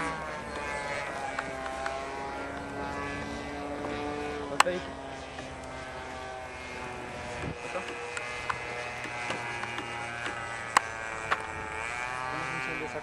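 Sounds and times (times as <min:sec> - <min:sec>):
model airplane engine running: 0:00.0 - 0:13.0.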